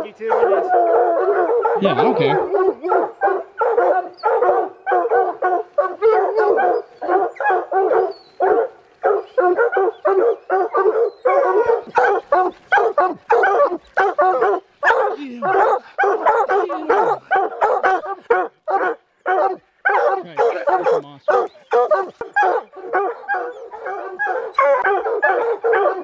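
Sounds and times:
hounds baying: 0:00.0 - 0:26.0.

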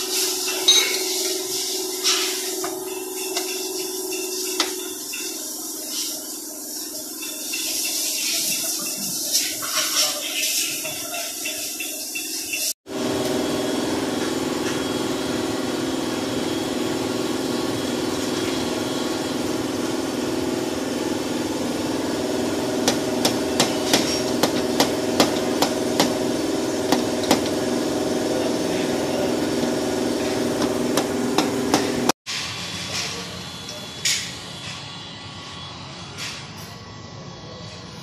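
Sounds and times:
steady machine hum: 0:12.9 - 0:32.2.

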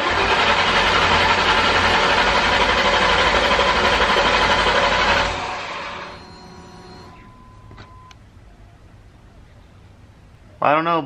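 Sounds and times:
car engine cranking: 0:00.0 - 0:08.2.

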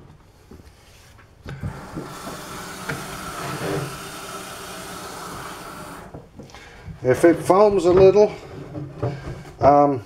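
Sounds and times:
tap water filling plastic jug: 0:01.5 - 0:06.5.

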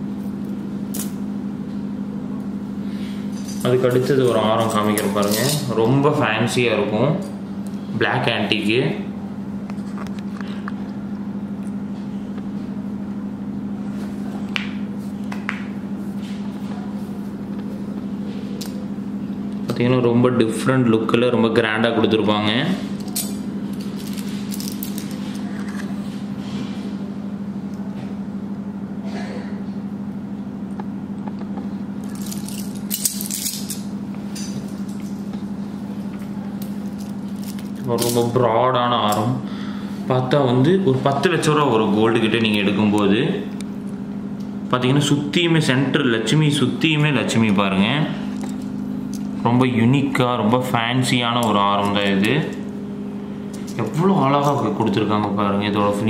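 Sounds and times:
steady low hum: 0:00.0 - 0:56.0
jewellery rustling and clinking: 0:03.2 - 0:05.8, 0:22.9 - 0:26.2, 0:32.0 - 0:38.4.

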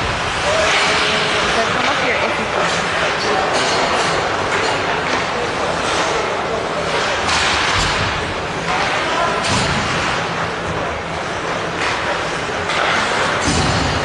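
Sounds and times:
spectators' voices: 0:00.0 - 0:14.0.

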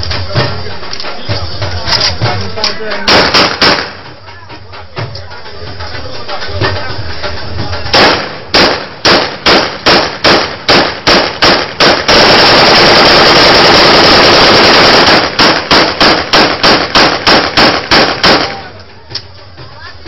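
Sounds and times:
automatic gunfire burst: 0:03.1 - 0:04.0, 0:08.0 - 0:18.6
single gunshots: 0:03.1 - 0:04.1, 0:07.9 - 0:18.7.

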